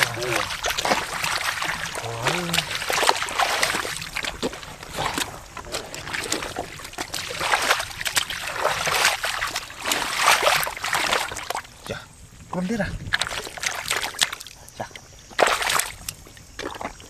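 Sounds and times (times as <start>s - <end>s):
mud squelching: 0.0s - 12.0s, 12.6s - 17.0s
muddy water splashing: 0.0s - 17.0s.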